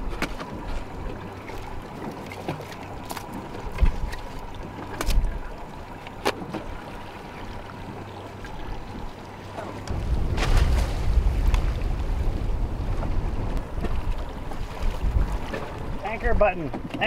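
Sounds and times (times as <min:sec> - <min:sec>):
steady low hum: 0:02.9 - 0:16.1.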